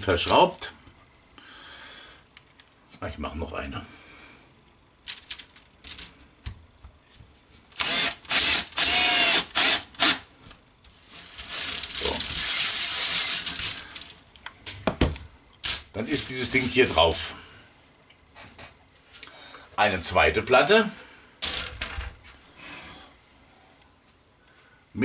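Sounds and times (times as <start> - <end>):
cordless screwdriver whine: 7.8 - 10.2, 11.4 - 14.0.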